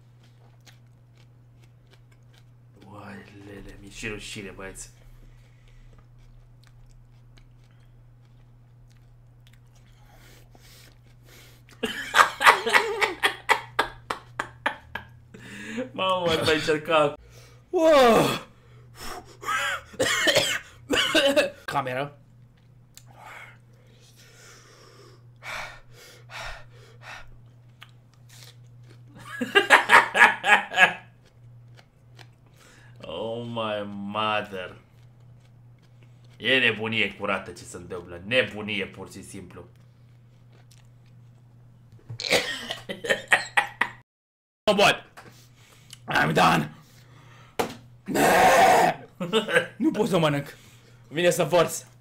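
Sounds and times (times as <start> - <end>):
rhythmic laughter: 11.8 - 15.9, 19.2 - 20.0, 29.2 - 31.1, 42.6 - 44.0.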